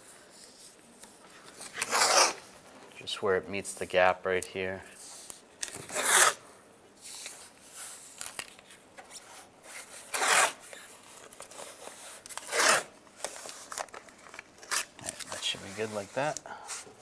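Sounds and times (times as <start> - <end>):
tape rubbing on door edge: 1.8 - 2.4, 11.9 - 12.9.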